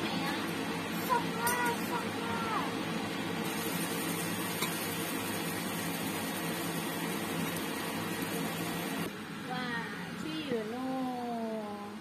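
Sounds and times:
low fan hum: 0.0 - 12.0
batter frying in hot oil: 3.3 - 9.1.

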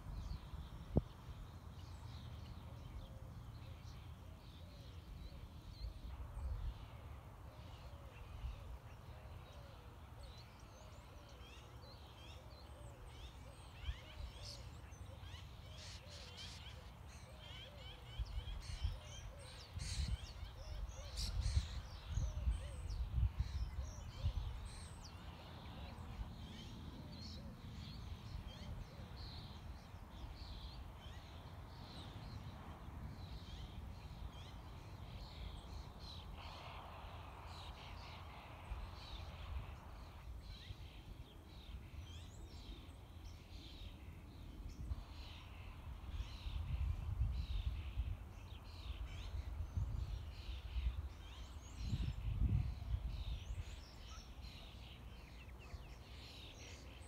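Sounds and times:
wind on microphone: 19.6 - 25.0, 46.0 - 53.9.

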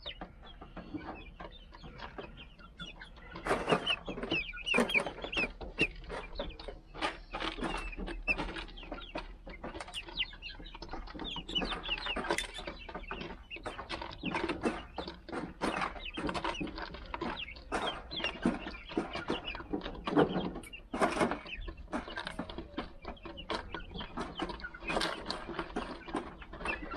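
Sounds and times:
beaks pecking at plastic feeder: 0.0 - 26.9
chickens clucking and peeping: 0.0 - 26.9.

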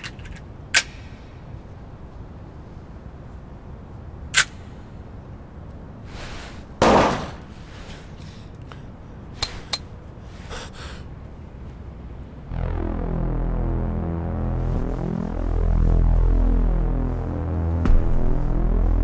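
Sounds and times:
heavy hit: 12.5 - 19.0.

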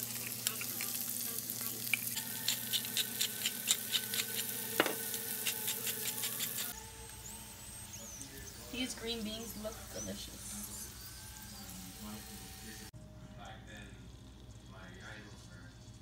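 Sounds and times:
beans sizzling in a frying pan: 0.0 - 6.7.

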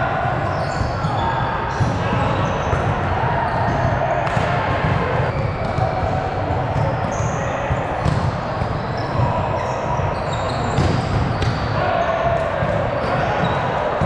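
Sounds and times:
players' voices: 0.0 - 14.0
sneaker squeaks: 0.4 - 14.0
balls thumping on court floor: 0.5 - 11.7.

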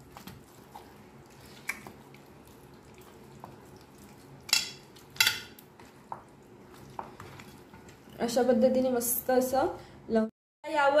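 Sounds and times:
wet squelches of raw chicken: 0.0 - 5.0
sharp wet smacks: 1.5 - 2.0.

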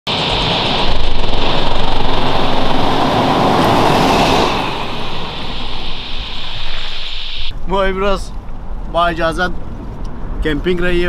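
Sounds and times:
car driving past: 0.1 - 7.5
steady high hiss: 0.1 - 8.2.

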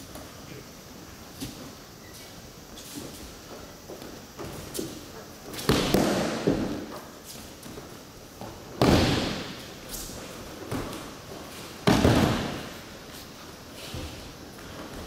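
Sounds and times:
body thudding on mat: 8.7 - 9.6, 11.8 - 12.8.

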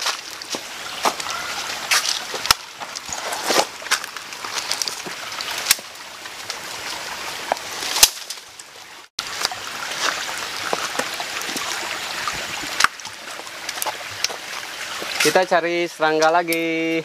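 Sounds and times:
footsteps on stones and leaves: 0.0 - 8.6, 9.2 - 11.8
stream trickling over rocks: 0.0 - 17.0.

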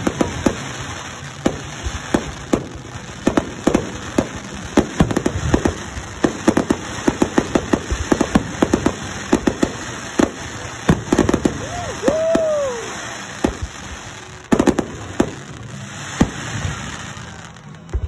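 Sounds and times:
fireworks bursting: 0.0 - 18.0
fireworks crackle: 0.0 - 18.0.

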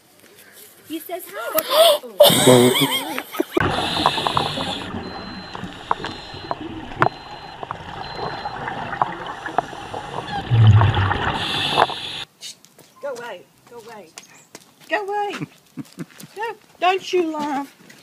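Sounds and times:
regulator exhale bubbles rushing: 3.6 - 12.2
sharp clicks underwater: 3.6 - 12.2
bubbling and gurgling water: 3.6 - 12.3.

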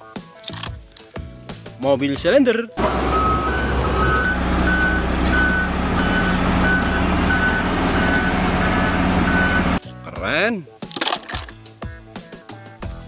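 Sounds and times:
diesel engine running: 2.8 - 9.8
reversing alarm beeps: 2.9 - 9.8.

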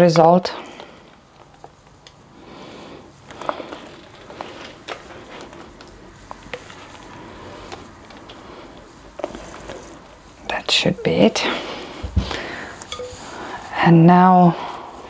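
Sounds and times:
spatula tapping against bowls: 12.8 - 13.3.

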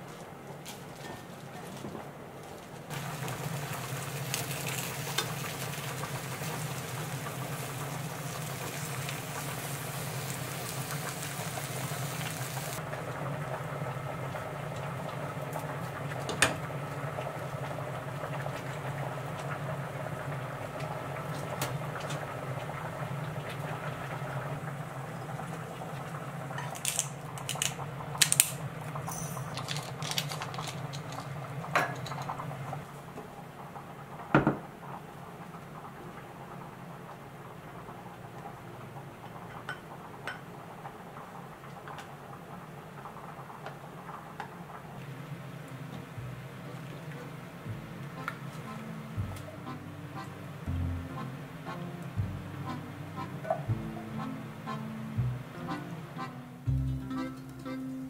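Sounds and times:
food sizzling in a frying pan: 2.9 - 33.0
utensils clicking against pan: 26.6 - 32.4
steady low hum: 45.1 - 58.0.

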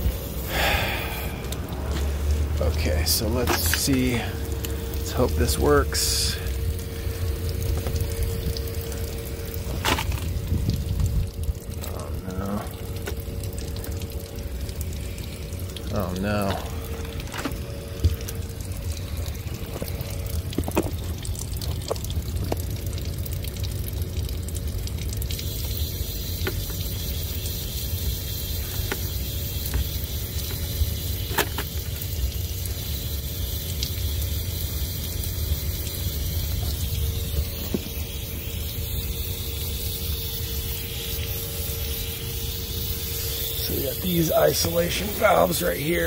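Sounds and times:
steady low hum: 0.0 - 46.0
water spraying from a valve: 0.0 - 46.0.

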